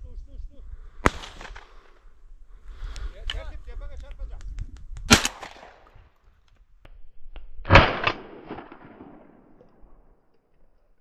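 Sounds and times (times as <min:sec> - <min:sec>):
shotgun shots with echo: 0:01.0 - 0:01.8, 0:05.1 - 0:05.9, 0:07.7 - 0:09.6.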